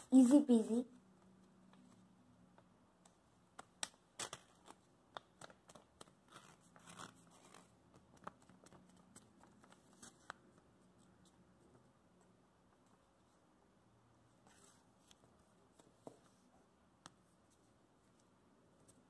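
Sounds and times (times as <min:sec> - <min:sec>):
paper crinkling and creasing: 0:03.6 - 0:11.1.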